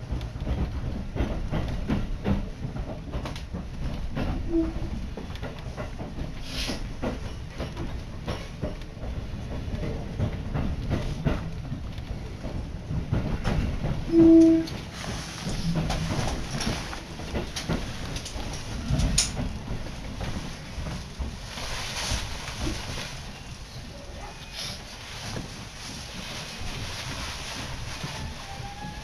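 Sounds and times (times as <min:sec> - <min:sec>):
clicks over rail joints: 0:00.0 - 0:21.5
train wheels rumbling on track: 0:00.0 - 0:29.0.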